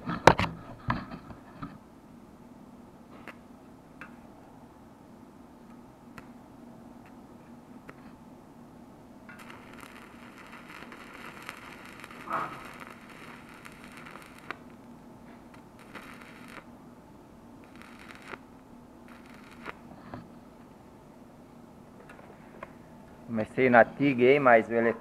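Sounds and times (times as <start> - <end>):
steady low hum: 0.0 - 24.8
arc pop: 9.3 - 14.7
welding arc crackling and sizzling: 9.3 - 16.7, 17.6 - 20.3.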